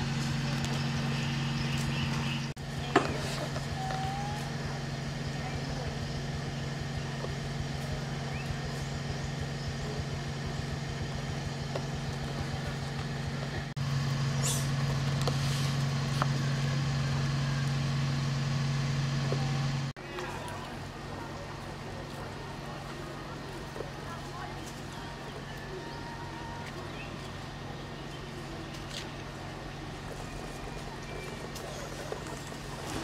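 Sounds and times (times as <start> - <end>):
steady low motor hum: 0.0 - 33.0.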